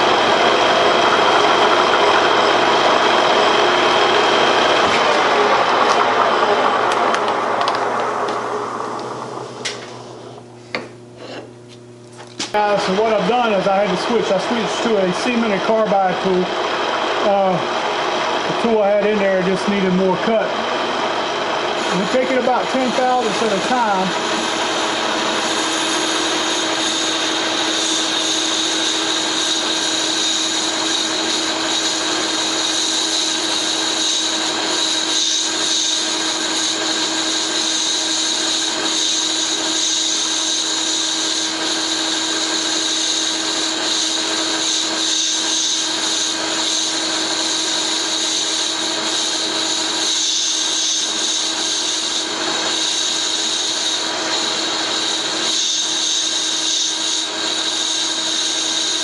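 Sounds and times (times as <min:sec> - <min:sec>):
metal lathe humming: 0:00.0 - 0:59.0
hiss of cutting tool: 0:21.7 - 0:59.0.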